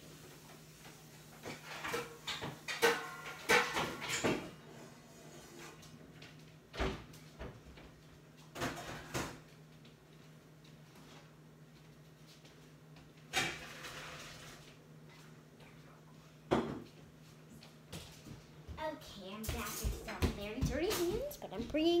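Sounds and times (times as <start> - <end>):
household knocks and clatters: 1.4 - 4.6, 19.5 - 21.4.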